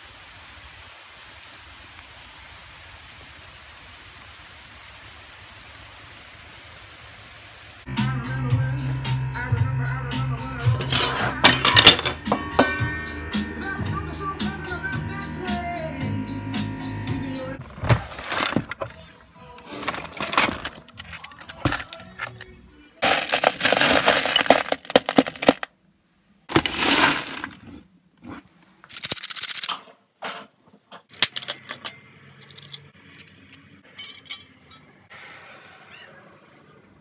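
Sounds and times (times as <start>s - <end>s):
metal screws rattling in a box: 23.0s - 25.7s, 28.9s - 29.8s, 31.1s - 34.8s.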